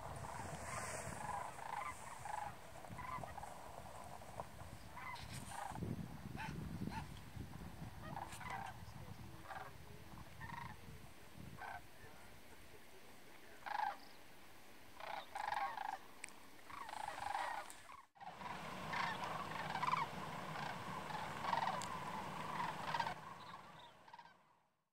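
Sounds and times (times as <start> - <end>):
cranes calling: 0.0 - 5.8, 8.0 - 8.8, 15.0 - 16.0, 16.7 - 24.4.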